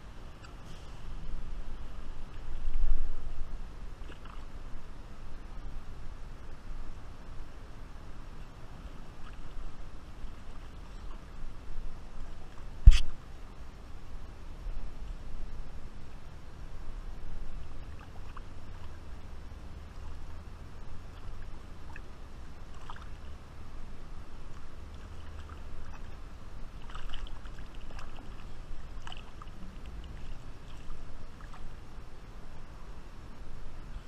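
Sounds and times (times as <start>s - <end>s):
river water lapping and swirling: 0.0s - 34.0s
steady low rumble: 0.0s - 34.0s
fish splashing: 21.1s - 23.4s, 24.9s - 31.7s.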